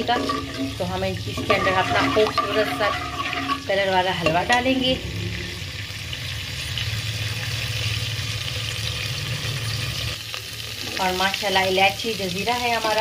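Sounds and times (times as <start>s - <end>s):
spices sizzling in hot oil: 0.0s - 13.0s
low steady hum: 0.2s - 7.2s.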